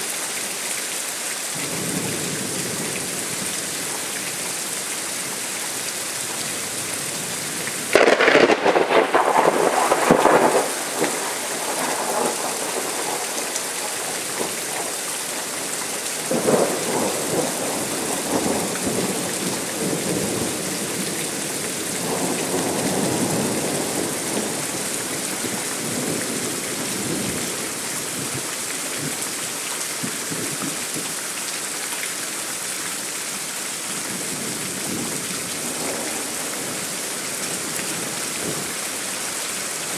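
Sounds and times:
rain hiss: 0.0s - 39.9s
thunder clap: 7.9s - 13.3s
thunder rolling: 7.9s - 13.3s.

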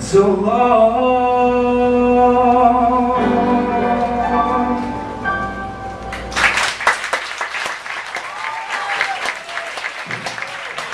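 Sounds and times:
piano ballad: 0.0s - 6.8s
audience applause: 6.1s - 10.9s.

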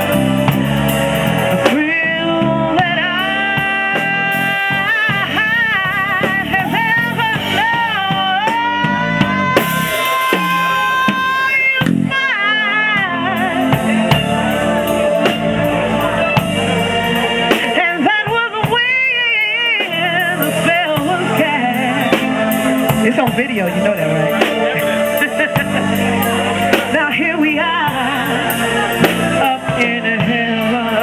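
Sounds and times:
drum kit with cymbals: 0.0s - 31.0s
electric bass guitar: 0.0s - 31.0s
woman singing with vibrato: 1.6s - 31.0s.

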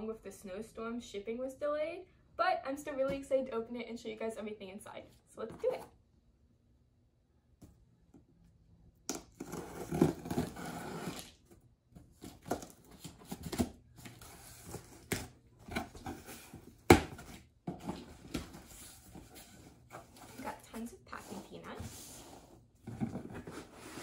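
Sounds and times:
cardboard flaps rustling and scraping: 12.0s - 24.0s.

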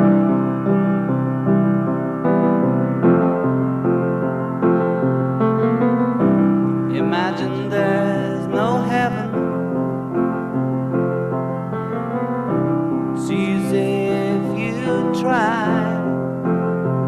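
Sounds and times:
sustained keyboard chords: 0.0s - 17.0s
person singing wavering melody: 6.9s - 9.7s, 13.2s - 16.3s.

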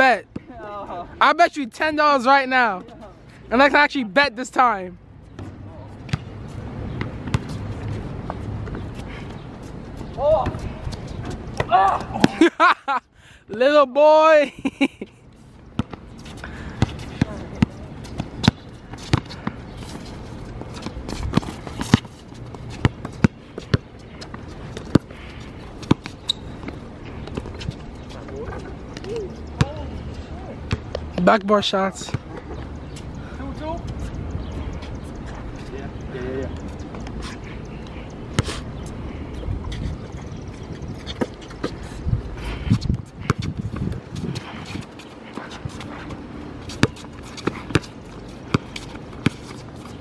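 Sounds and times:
basketball bouncing on hard court: 15.8s - 16.0s
wind rumble on microphone: 39.0s - 41.2s, 41.8s - 45.0s.

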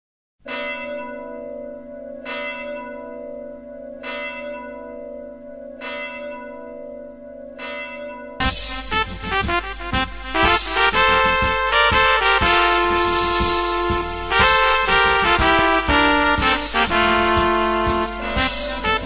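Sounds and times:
large bell tolling: 0.4s - 10.0s, 11.8s - 19.0s
loud music: 8.4s - 19.0s.

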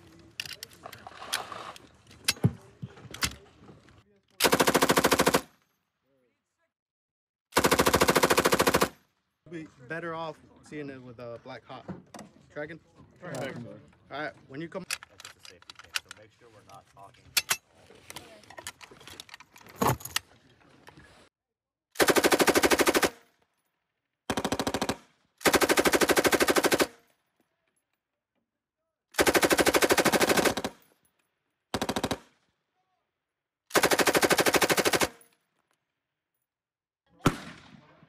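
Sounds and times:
machine gun automatic bursts: 4.4s - 5.4s, 22.0s - 23.1s, 24.3s - 26.9s, 29.2s - 30.7s, 31.8s - 32.2s, 33.7s - 35.1s.

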